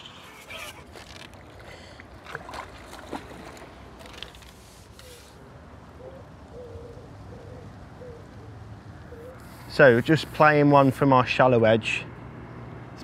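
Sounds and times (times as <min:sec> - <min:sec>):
water sloshing: 0:00.0 - 0:05.1
small splashes and drips: 0:00.9 - 0:04.6.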